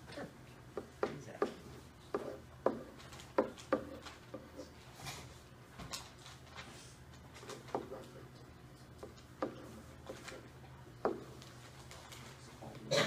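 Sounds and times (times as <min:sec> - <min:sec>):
pen tapping on whiteboard: 0:00.8 - 0:04.6, 0:07.5 - 0:08.1, 0:09.0 - 0:10.4, 0:11.0 - 0:11.4.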